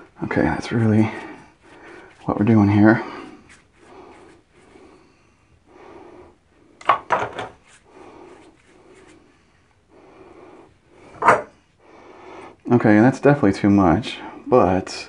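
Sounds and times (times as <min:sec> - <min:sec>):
hands rubbing together: 0:00.7 - 0:05.0, 0:07.6 - 0:09.4.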